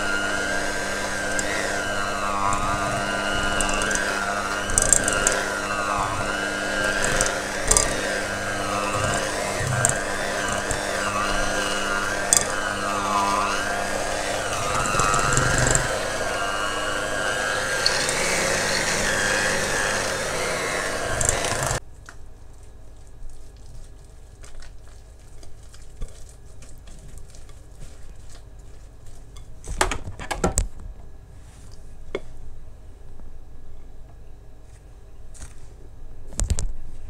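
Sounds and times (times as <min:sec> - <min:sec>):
kitchen appliance motor running: 0:00.0 - 0:21.8.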